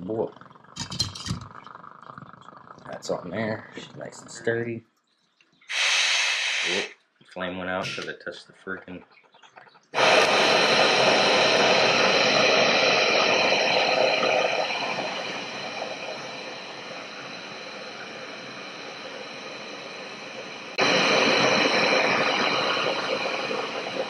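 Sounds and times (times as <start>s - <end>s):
gas burner flame hissing: 5.7s - 7.0s, 10.0s - 24.0s.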